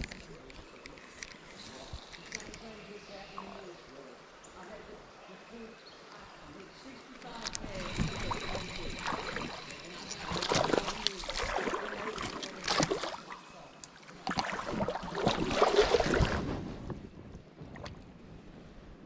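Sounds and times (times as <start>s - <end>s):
wading through shallow water: 6.0s - 18.4s.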